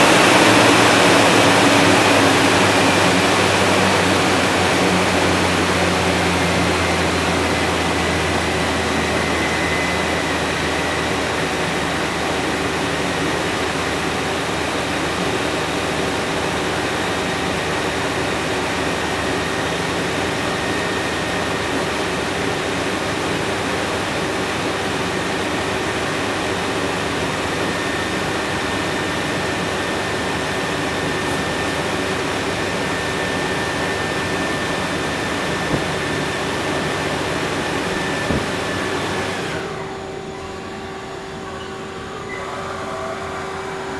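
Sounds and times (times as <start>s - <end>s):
faint high whine: 0.0s - 13.4s, 24.9s - 43.9s
lathe spindle whirring: 0.0s - 42.4s.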